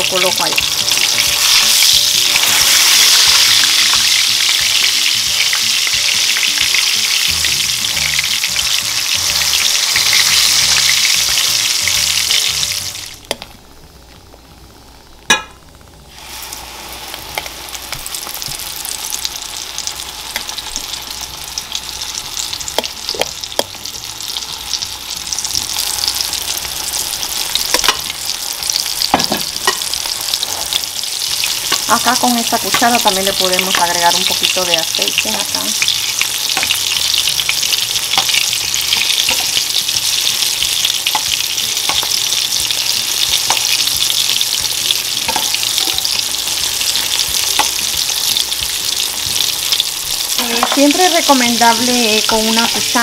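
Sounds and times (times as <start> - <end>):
oil crackling and popping: 0.0 - 7.4, 15.1 - 53.0
fish frying in hot oil: 0.0 - 13.3, 16.1 - 53.0.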